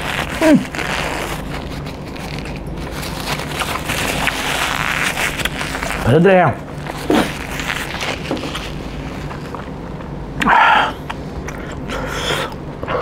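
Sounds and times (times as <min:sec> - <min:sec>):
man blowing nose: 0:00.0 - 0:01.4, 0:07.0 - 0:07.8.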